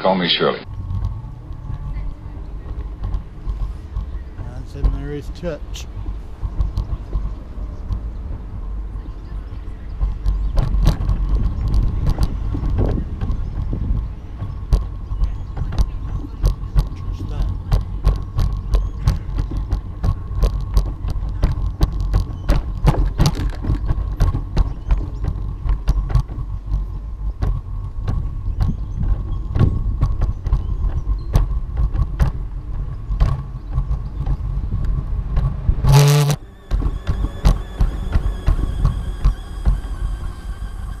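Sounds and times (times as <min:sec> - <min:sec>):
camera handling rumble: 0:10.2 - 0:41.0
gimbal motor whine: 0:35.7 - 0:41.0
loud tonal burst: 0:35.9 - 0:41.0.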